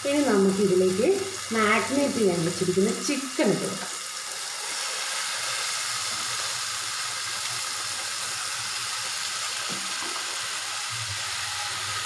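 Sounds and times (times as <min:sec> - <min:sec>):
chicken sizzling in a hot pan: 0:00.0 - 0:12.0.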